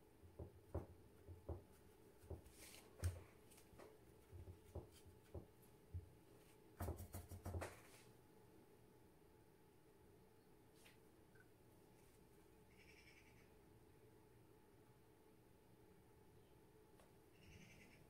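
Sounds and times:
low room hum: 0:00.0 - 0:18.0
brush and tissue taps and rustles: 0:00.4 - 0:08.1.

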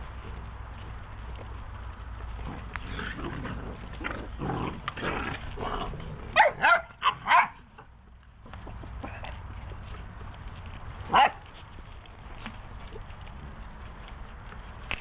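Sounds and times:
puppies scuffling: 0:00.0 - 0:15.0
high-pitched puppy yelps: 0:06.4 - 0:07.6.

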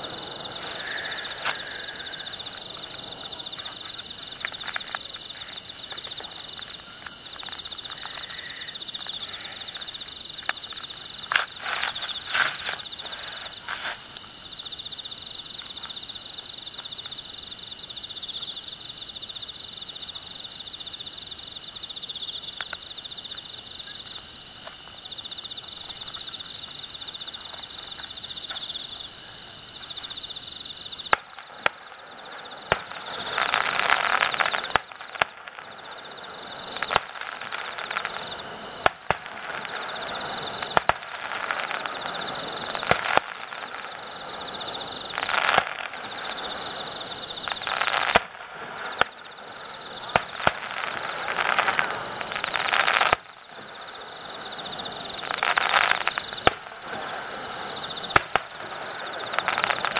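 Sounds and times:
distant fireworks banging: 0:00.0 - 0:10.0, 0:31.1 - 0:35.7, 0:36.6 - 0:59.9
insects chirping: 0:00.0 - 0:59.9.

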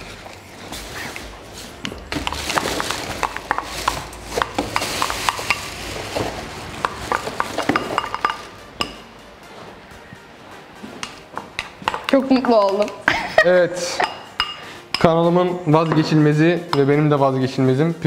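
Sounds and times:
bowls clinking together: 0:01.8 - 0:09.1, 0:11.0 - 0:13.2, 0:13.9 - 0:17.0.

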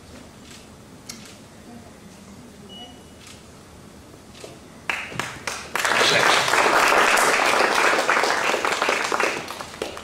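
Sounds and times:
crowd applauding: 0:04.9 - 0:10.0.

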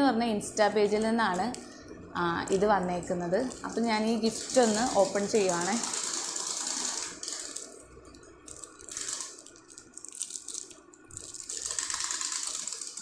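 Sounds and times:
plastic wrapping crinkling: 0:03.3 - 0:13.0.

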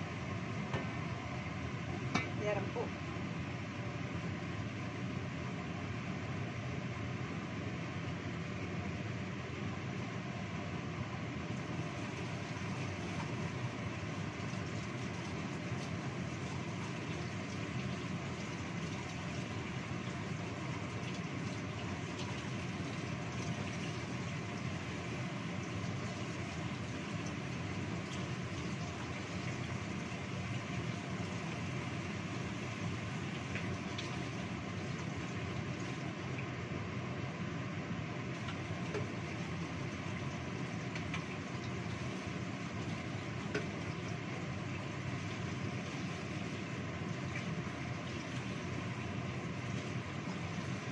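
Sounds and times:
chicken simmering in water: 0:00.0 - 0:36.8, 0:38.1 - 0:50.9.

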